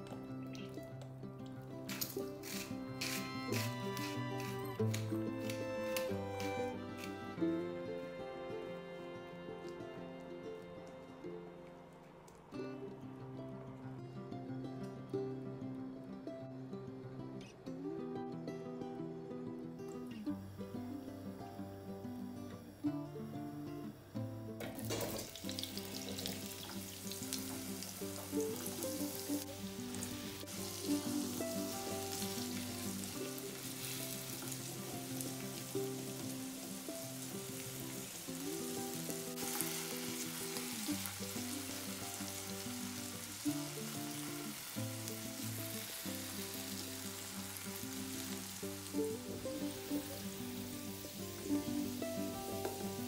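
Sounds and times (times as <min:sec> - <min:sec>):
spatula turning food in pan: 0:00.0 - 0:07.6, 0:24.9 - 0:53.0
vegetables sizzling in oil: 0:00.0 - 0:07.8, 0:24.6 - 0:53.0
background music: 0:00.0 - 0:53.0.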